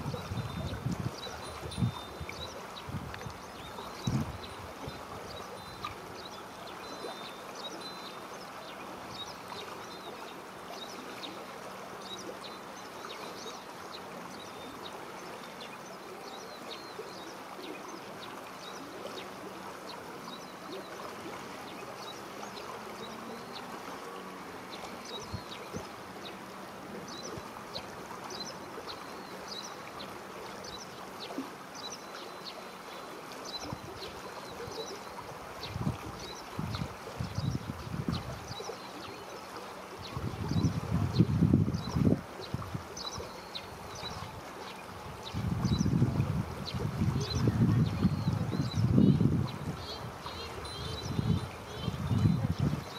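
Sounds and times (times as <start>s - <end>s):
river water flowing: 0.0s - 52.9s
small birds chirping: 46.6s - 52.9s.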